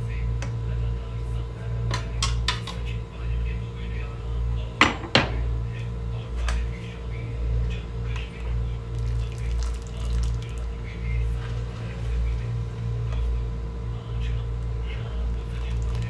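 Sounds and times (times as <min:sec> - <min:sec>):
steady low rumble: 0:00.0 - 0:16.0
water dripping and splashing: 0:08.9 - 0:10.6.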